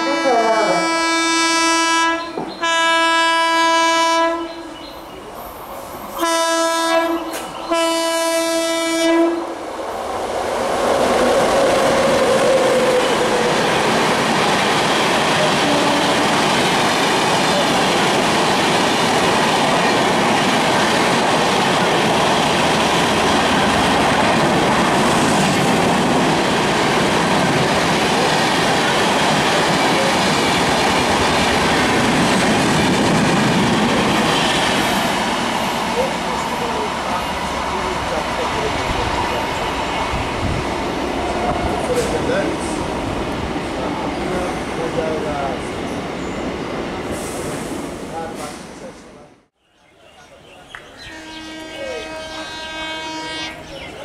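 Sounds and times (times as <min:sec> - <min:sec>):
locomotive horn blasts: 0:00.0 - 0:04.7, 0:06.2 - 0:09.5, 0:15.7 - 0:16.2, 0:51.0 - 0:53.7
train passing at speed: 0:00.0 - 0:49.6, 0:50.2 - 0:54.0.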